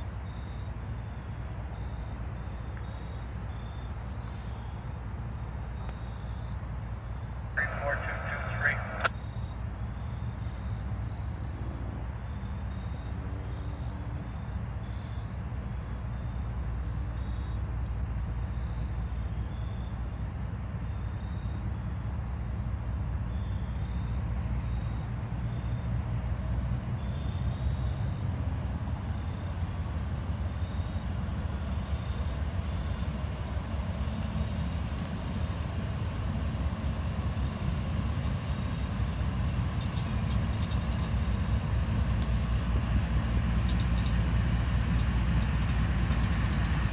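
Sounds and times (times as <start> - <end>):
diesel locomotives rumbling: 0.0 - 46.9.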